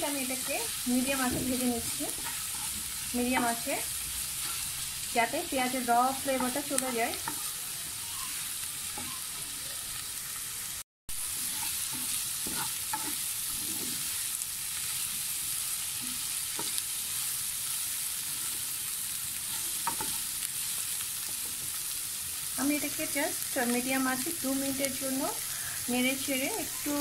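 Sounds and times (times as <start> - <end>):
onions sizzling in a pan: 0.0 - 27.0
wooden spatula scraping a pan: 0.2 - 3.0, 4.4 - 4.9, 11.3 - 14.2.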